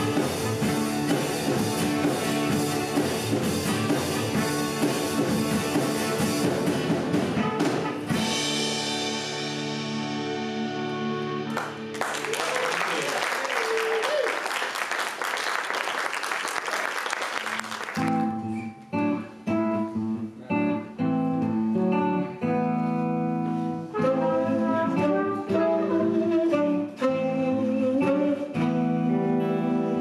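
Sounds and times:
guitars picking notes: 0:00.0 - 0:12.2, 0:17.9 - 0:30.0
audience applause: 0:11.5 - 0:18.4.

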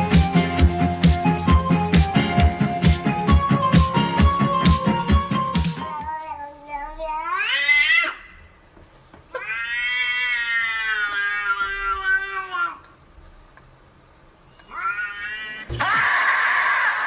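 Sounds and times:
music: 0:00.0 - 0:06.1
cat meowing: 0:09.4 - 0:12.7, 0:14.6 - 0:15.7.

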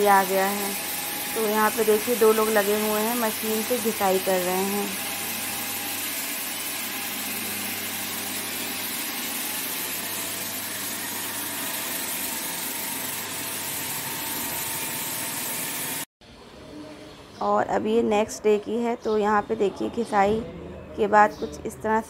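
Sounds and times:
floor grinder stones hissing: 0:00.0 - 0:16.1.

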